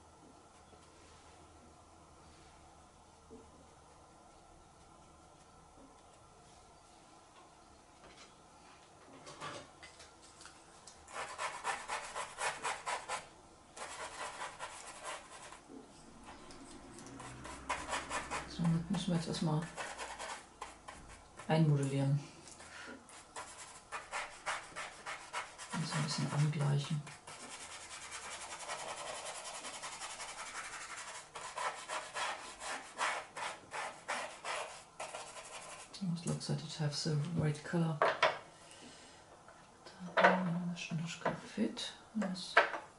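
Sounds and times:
brush scrubbing paper: 11.1s - 15.6s, 17.2s - 21.6s, 22.7s - 36.0s.

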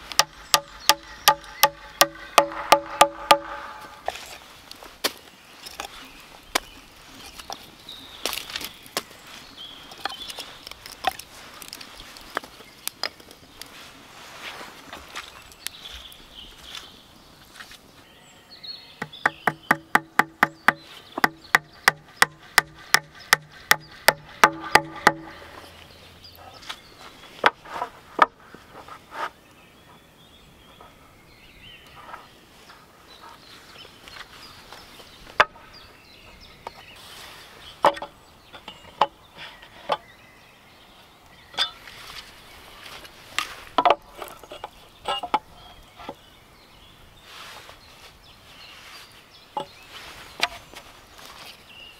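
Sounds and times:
hammer driving nails into wood: 0.1s - 4.1s, 19.0s - 25.6s
wood and tools clattering: 9.9s - 13.4s, 19.1s - 25.8s, 37.8s - 40.1s, 41.5s - 46.2s.

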